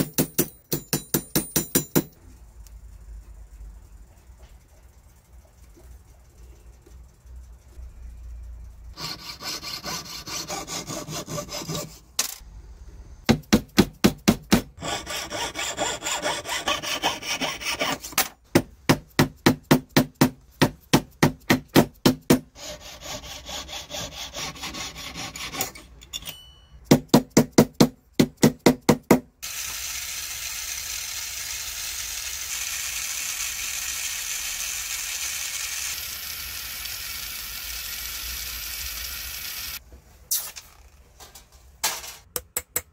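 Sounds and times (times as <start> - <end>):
file rasping on metal ring: 9.0 - 12.1, 14.8 - 18.2, 22.5 - 25.9
gas torch flame hissing: 29.4 - 40.5.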